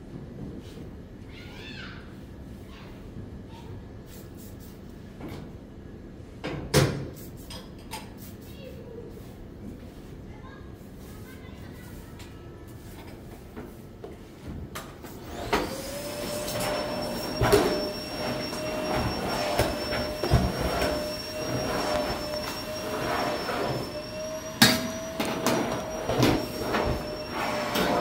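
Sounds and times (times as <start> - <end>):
small electric motor whining: 15.2 - 28.0.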